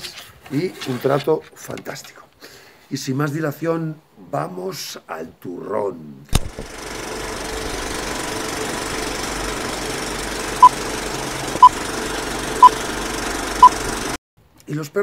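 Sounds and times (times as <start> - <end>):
film projector clattering: 6.4 - 14.2.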